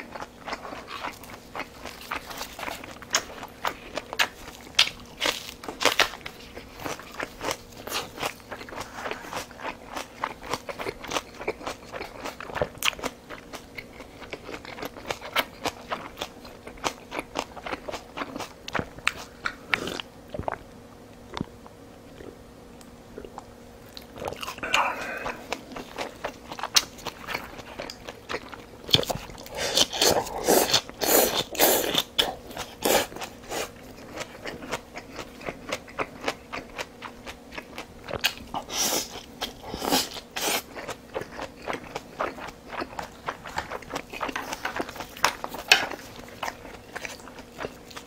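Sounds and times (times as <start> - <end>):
person chewing with mouth sounds: 0.0 - 22.4, 23.1 - 48.0
person sipping soup: 24.5 - 26.0.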